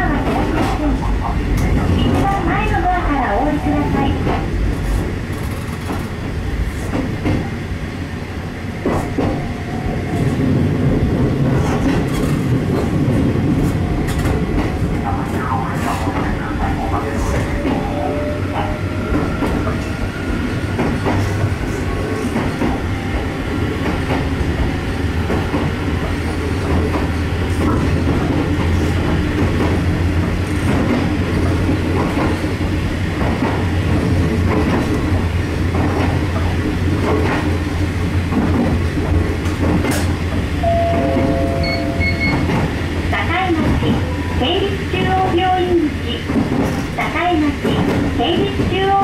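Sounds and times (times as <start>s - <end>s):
rail joint clicks: 0.0s - 7.6s, 8.7s - 49.0s
train motor and wheel hum: 0.0s - 49.0s
brief higher tones: 40.6s - 42.5s.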